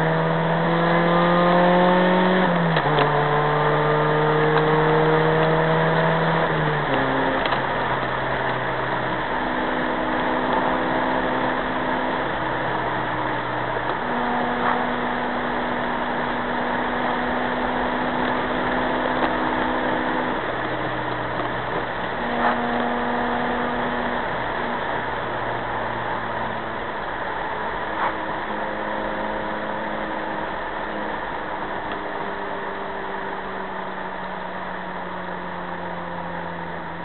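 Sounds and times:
car engine humming: 0:00.0 - 0:37.0
tyre and road noise: 0:00.0 - 0:37.0.

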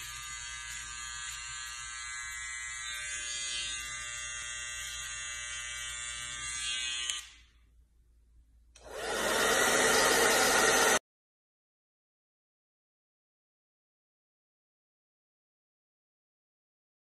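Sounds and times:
hair trimmer buzzing: 0:00.0 - 0:07.6, 0:08.8 - 0:11.0.

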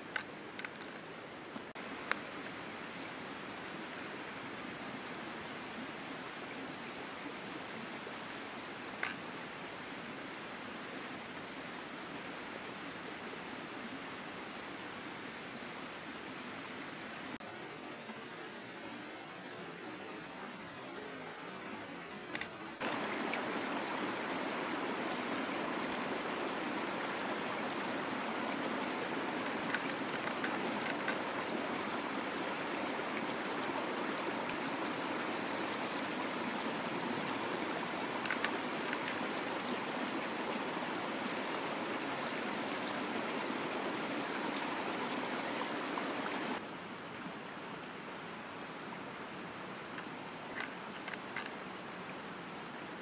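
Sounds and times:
rushing water: 0:00.0 - 0:53.0
faint ticks: 0:09.0 - 0:09.2, 0:29.4 - 0:31.3, 0:38.2 - 0:39.5.

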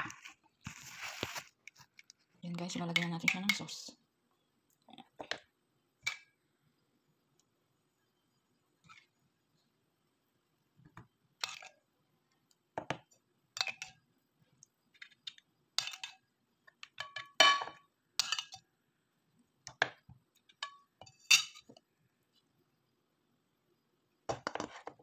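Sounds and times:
spoon clinking on dishes: 0:17.0 - 0:18.6, 0:20.6 - 0:21.7.

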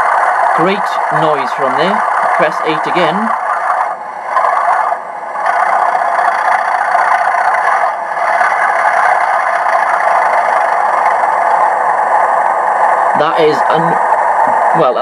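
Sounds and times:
diesel engine sound through small speaker: 0:00.0 - 0:09.2, 0:13.1 - 0:15.0.

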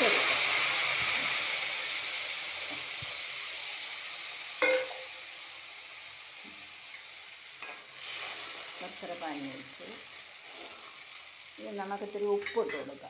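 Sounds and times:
hot oil sizzling: 0:00.0 - 0:13.0
metal clink: 0:04.6 - 0:05.1.

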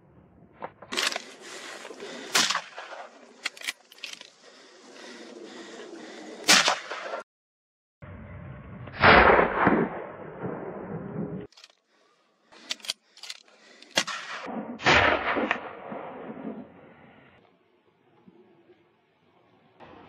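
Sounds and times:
rifle shots with rolling echo: 0:02.1 - 0:03.5, 0:06.5 - 0:07.2, 0:09.0 - 0:11.4, 0:14.0 - 0:17.1
sharp gunshot cracks: 0:02.2 - 0:03.1, 0:06.5 - 0:07.2, 0:09.0 - 0:10.6, 0:14.0 - 0:16.6.

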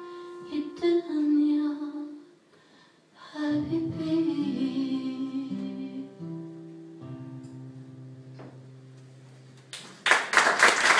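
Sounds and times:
acoustic guitar chords ringing: 0:03.6 - 0:09.6.

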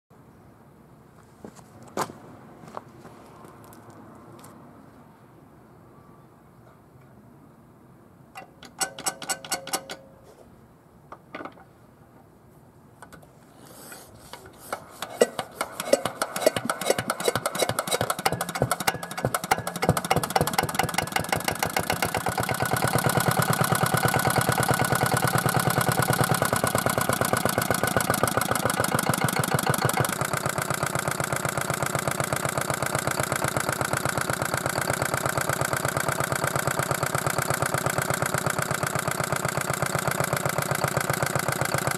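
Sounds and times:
starter clicks: 0:08.4 - 0:10.0, 0:13.9 - 0:30.7
diesel engine running: 0:14.5 - 0:41.9.

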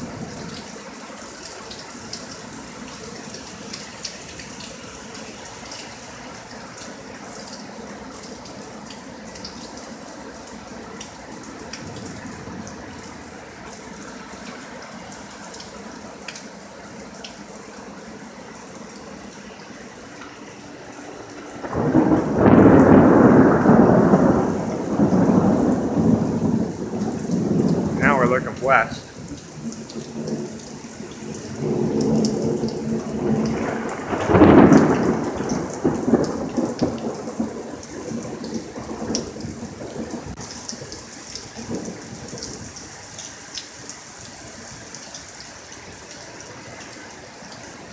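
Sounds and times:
dripping water: 0:00.0 - 0:47.9
steady rain: 0:00.0 - 0:47.9
thunder: 0:21.6 - 0:28.1, 0:31.5 - 0:40.4.

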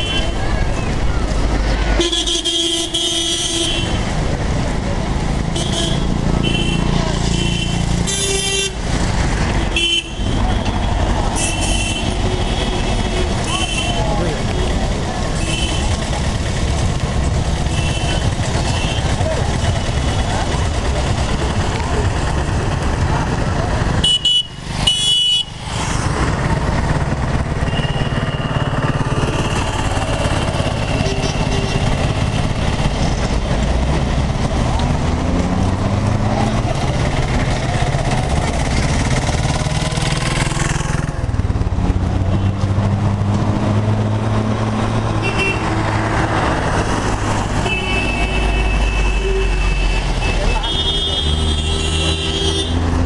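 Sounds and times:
vehicle engine running: 0:00.0 - 0:47.7
road traffic hum: 0:00.0 - 0:53.0
vehicle horns honking: 0:02.0 - 0:04.0, 0:05.5 - 0:08.8, 0:09.6 - 0:14.8, 0:15.4 - 0:16.1, 0:17.6 - 0:19.2, 0:24.0 - 0:25.5, 0:27.6 - 0:32.1, 0:45.2 - 0:45.8, 0:47.6 - 0:52.9
horn beeping: 0:27.6 - 0:32.0, 0:47.6 - 0:52.9.

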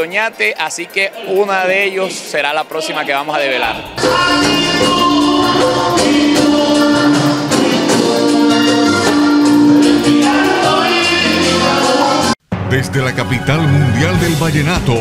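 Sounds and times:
live band playing: 0:03.6 - 0:15.0
man singing into a microphone: 0:03.8 - 0:08.7, 0:09.9 - 0:12.4.

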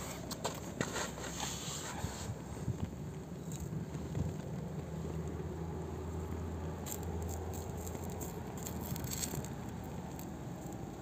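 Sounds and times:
stick scraping melted plastic: 0:06.9 - 0:10.4.

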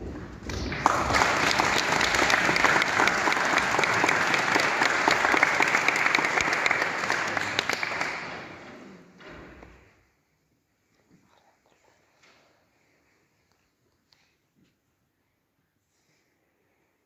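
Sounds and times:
audience applauding: 0:00.7 - 0:08.8.

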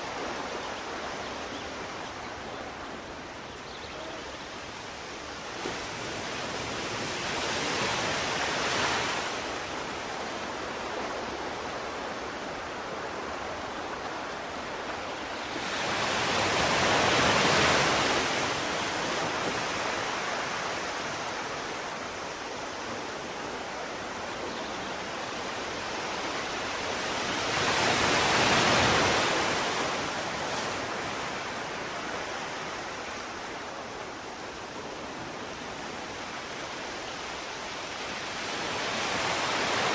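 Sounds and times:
sea waves breaking on a beach: 0:00.0 - 0:39.9.

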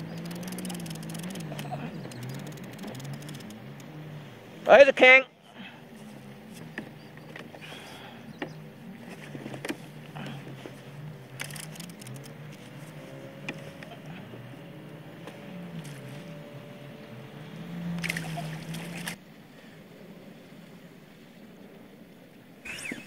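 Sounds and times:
knocks and clicks: 0:00.0 - 0:03.9
water splashing: 0:00.0 - 0:04.6, 0:08.9 - 0:13.7, 0:17.4 - 0:19.2
low wavering hum: 0:00.0 - 0:04.7, 0:05.3 - 0:23.0
water sloshing and trickling: 0:05.4 - 0:21.9.

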